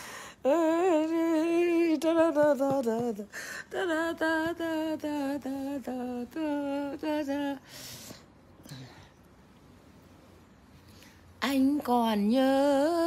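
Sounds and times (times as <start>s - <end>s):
woman singing unaccompanied: 0.0s - 7.8s, 11.4s - 13.0s.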